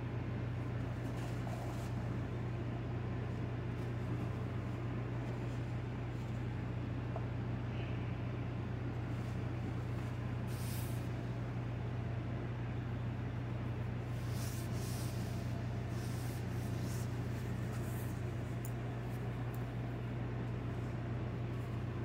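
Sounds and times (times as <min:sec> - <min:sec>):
hands rustling dough and cloth: 0:14.0 - 0:22.0.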